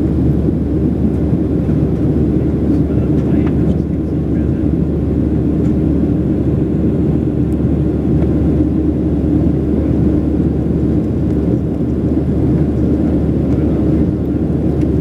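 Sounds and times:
jet engine drone in cabin: 0:00.0 - 0:15.0.

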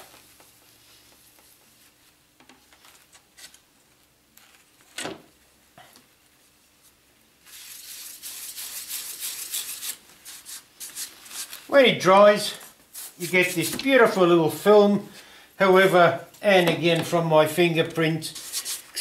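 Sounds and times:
fingertips rubbing acrylic sheet: 0:07.5 - 0:11.6.

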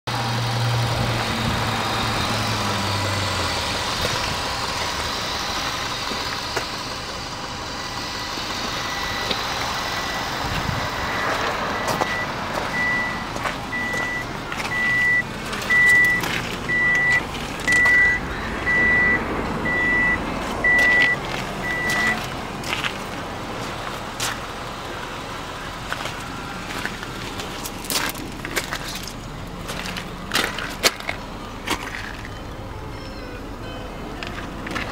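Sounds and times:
outdoor background noise: 0:00.1 - 0:34.9
electronic warning beeps: 0:07.7 - 0:22.3.

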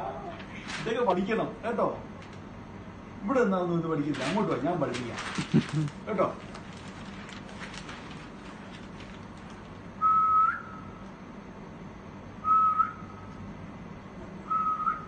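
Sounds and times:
man whistling short notes: 0:10.0 - 0:10.9, 0:12.4 - 0:13.1, 0:14.4 - 0:15.0.

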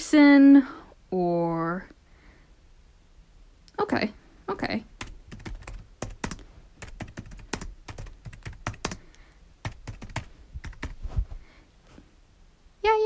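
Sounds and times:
computer keyboard typing: 0:05.0 - 0:11.0.

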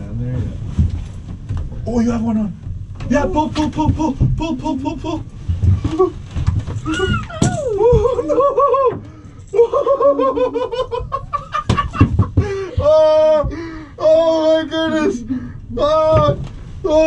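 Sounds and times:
sharp knocks: 0:11.6 - 0:13.6.

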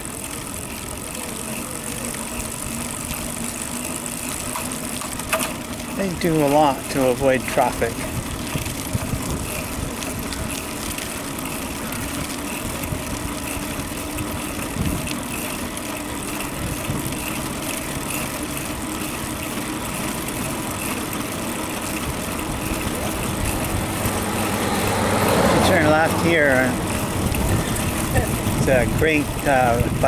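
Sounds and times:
low rumble of traffic: 0:00.0 - 0:30.0
road noise: 0:00.0 - 0:30.0
wind on microphone: 0:27.1 - 0:30.0.

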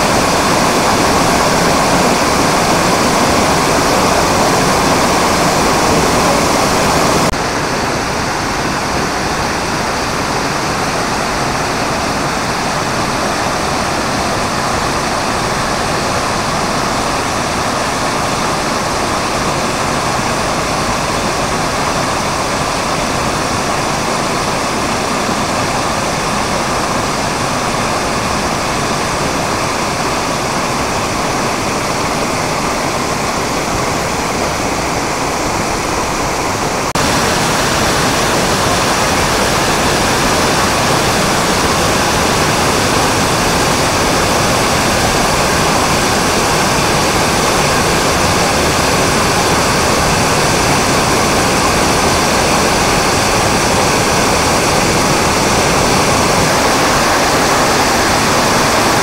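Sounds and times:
waterfall rushing: 0:00.0 - 0:59.0.

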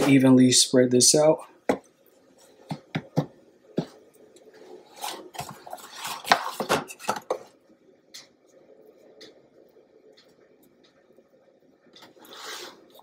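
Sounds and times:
spatula scraping foil pan: 0:04.8 - 0:07.2.

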